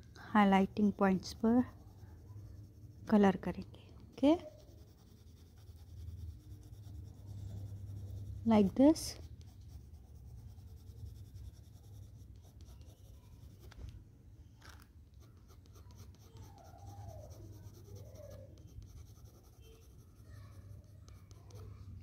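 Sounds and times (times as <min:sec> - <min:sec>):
low steady hum: 0:00.0 - 0:15.8
pencil scratching on paper: 0:00.6 - 0:13.9, 0:15.2 - 0:22.0.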